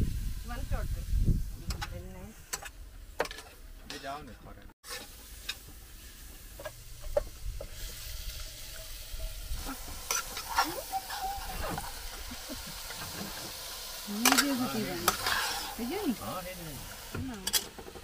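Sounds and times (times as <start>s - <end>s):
meat sizzling in a pot: 0.0s - 3.1s, 4.8s - 18.0s
metal spatula scraping pot: 2.5s - 5.6s, 6.6s - 16.6s.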